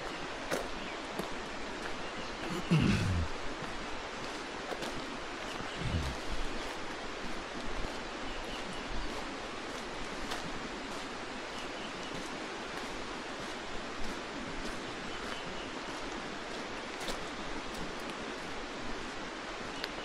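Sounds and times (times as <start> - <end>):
steady rushing noise: 5.5 - 6.8.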